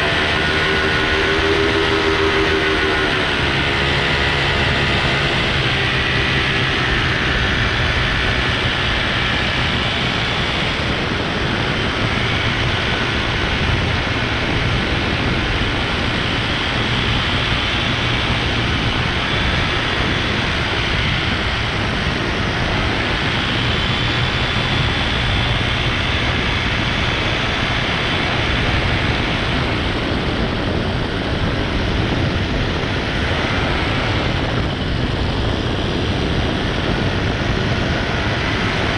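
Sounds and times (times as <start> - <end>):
high wavering whine of drone: 0.0 - 38.9
paramotor propeller and engine: 0.0 - 38.9.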